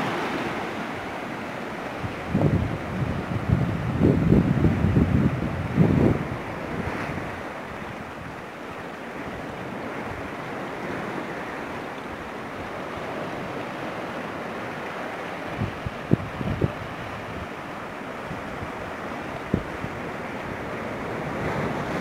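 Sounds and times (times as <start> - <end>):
sea surf breaking on rocks: 0.0 - 22.0
wind buffeting microphone: 1.8 - 8.4, 15.4 - 22.0.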